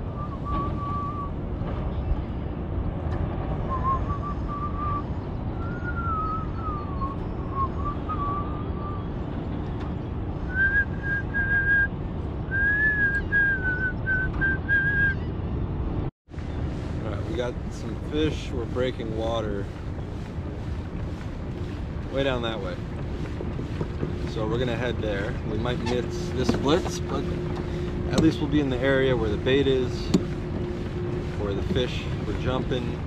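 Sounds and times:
steady low rumble: 0.0 - 33.0
man whistling a tune: 0.2 - 1.3, 3.7 - 9.0, 10.5 - 11.9, 12.5 - 15.2.

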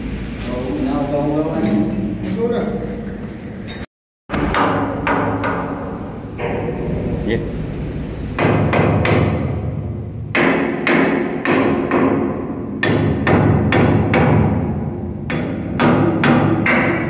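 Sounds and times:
hammer striking metal cover: 4.3 - 6.8, 10.3 - 17.0.

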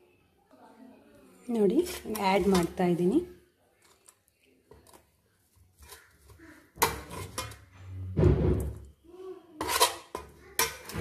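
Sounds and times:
metal spoon scraping steel bowl: 1.5 - 5.0, 5.7 - 8.1, 9.6 - 11.0.

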